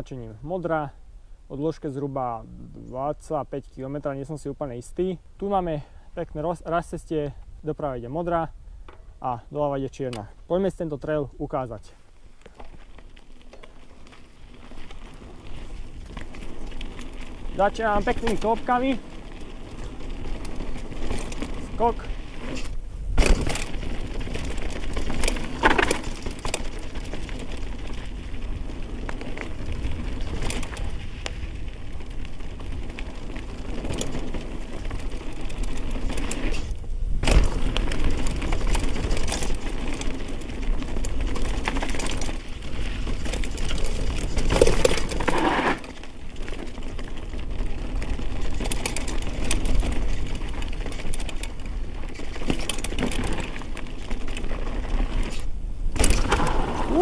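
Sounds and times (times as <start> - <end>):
bike rattling and tyre noise: 1.6 - 57.0
bike knocking over bumps: 23.1 - 27.6, 37.2 - 42.4, 43.0 - 45.9, 55.9 - 57.0.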